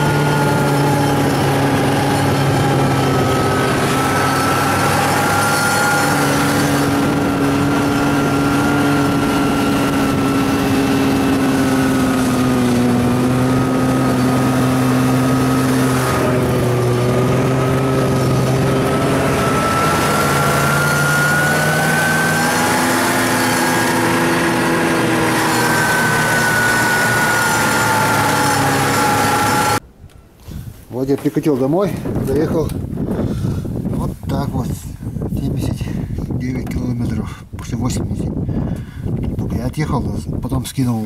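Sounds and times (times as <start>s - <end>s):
snowmobile engine running: 0.0s - 29.8s.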